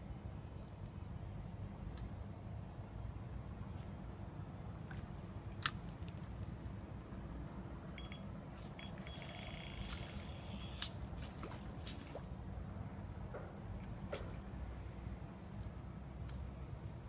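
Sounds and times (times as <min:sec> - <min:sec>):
high-pitched electronic tone: 0:08.8 - 0:10.8.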